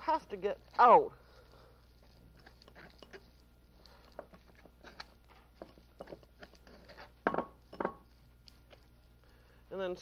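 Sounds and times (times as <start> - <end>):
spoon scraping a sieve: 2.0 - 8.1.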